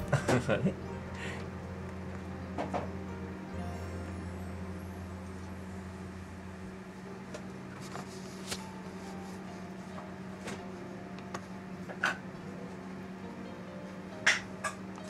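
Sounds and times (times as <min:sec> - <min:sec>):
low room tone hum: 0:00.0 - 0:15.0.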